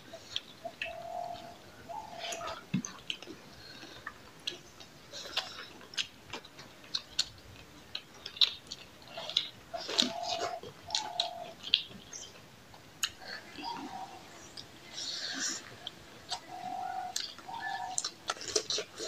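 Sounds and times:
lip smacks and chewing: 2.2 - 13.8, 17.1 - 19.0.

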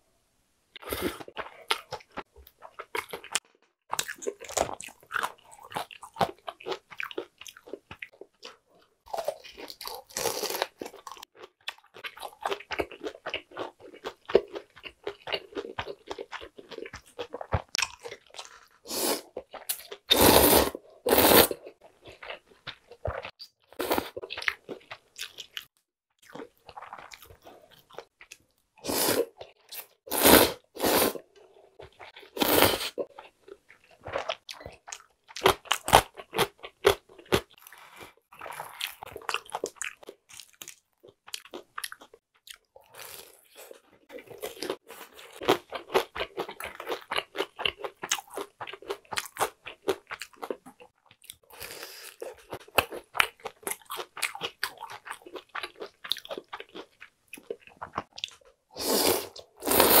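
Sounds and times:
slurping noodles: 18.8 - 19.4, 20.1 - 21.6, 28.8 - 31.2, 32.3 - 33.0, 58.8 - 60.0.

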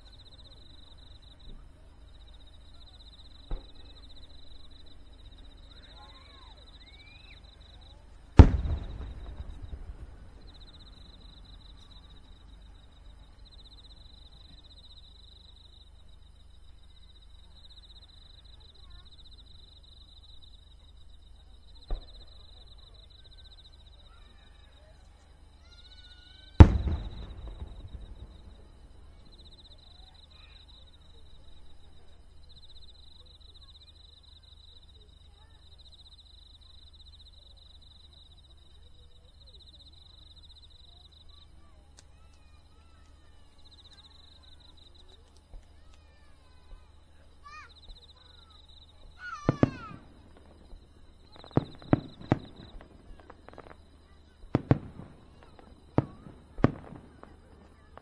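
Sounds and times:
insects chirping: 0.0 - 58.0
firework booms: 3.3 - 4.8, 8.4 - 12.5, 21.8 - 22.5, 26.5 - 30.6, 49.0 - 58.0
sharp bang: 8.4 - 10.6, 26.6 - 29.2.

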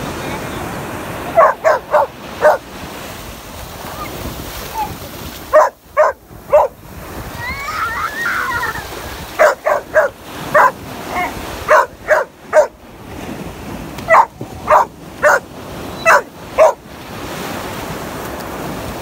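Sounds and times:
surf rushing: 0.0 - 19.0
puppy barking: 1.3 - 2.6, 5.5 - 6.8, 9.4 - 12.8, 14.1 - 16.8.

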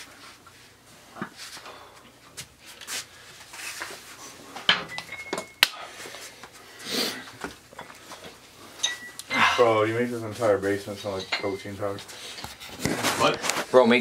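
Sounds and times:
objects knocking and clinking: 4.7 - 5.8.

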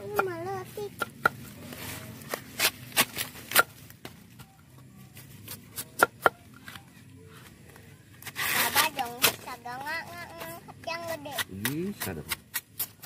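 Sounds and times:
machete cutting bamboo: 2.2 - 4.2, 5.4 - 6.8, 8.2 - 9.5, 11.0 - 13.0.

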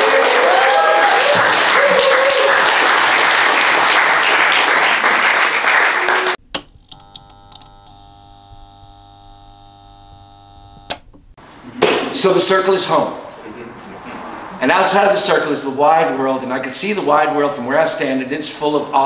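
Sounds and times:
voices whooping: 0.0 - 2.7
audience applauding: 0.0 - 6.4.

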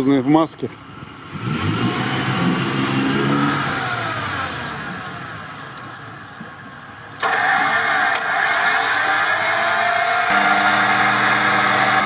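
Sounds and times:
vehicle engine revving: 0.9 - 5.5, 7.2 - 12.0.

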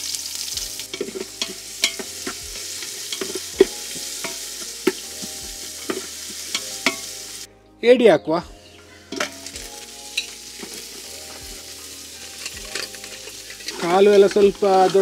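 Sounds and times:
onions sizzling in hot oil: 0.0 - 7.5, 9.1 - 15.0
spatula scraping a metal pot: 0.9 - 7.1, 10.2 - 15.0.

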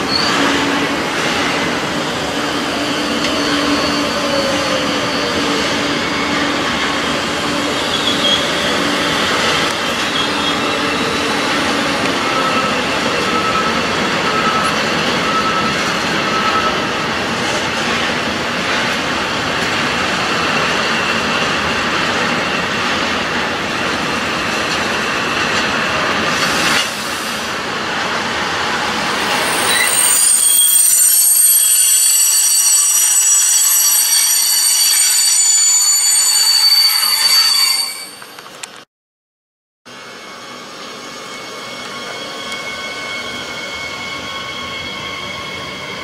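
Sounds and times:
high wheel squeals: 2.3 - 17.9, 28.6 - 38.6, 39.9 - 46.0.

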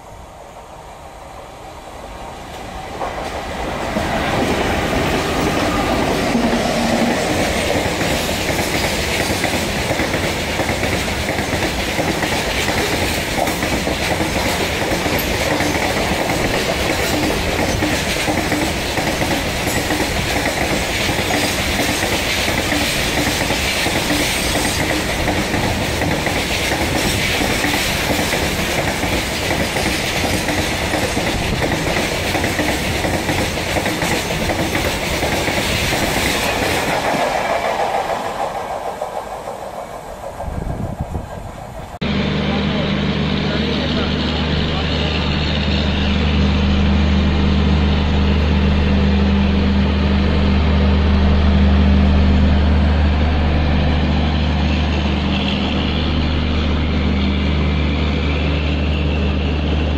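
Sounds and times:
train rumble: 0.0 - 59.9
train wheels clattering: 2.5 - 42.0.

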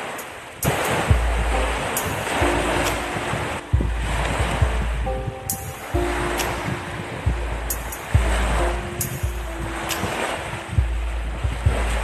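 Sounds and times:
deep bass hits: 1.1 - 1.8, 3.7 - 6.4, 7.3 - 8.6.

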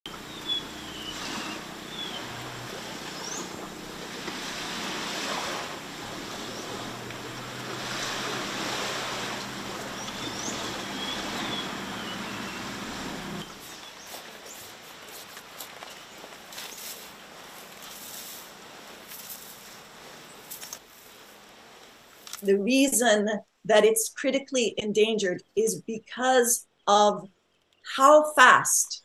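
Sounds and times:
surf washing on shore: 0.1 - 22.5
bird calls sliding in pitch: 0.2 - 3.6, 8.0 - 13.8.

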